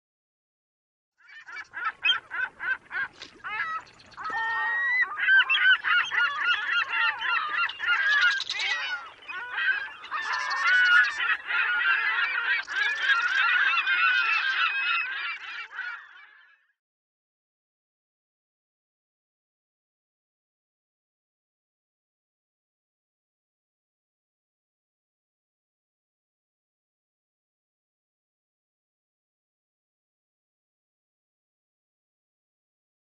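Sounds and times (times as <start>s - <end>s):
gulls calling: 1.2s - 16.8s.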